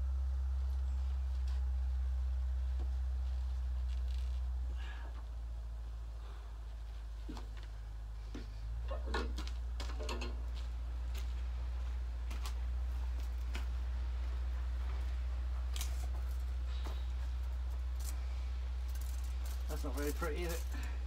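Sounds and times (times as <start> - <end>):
steady low rumble: 0.0 - 21.0
sharp clicks and knocks: 8.4 - 10.5.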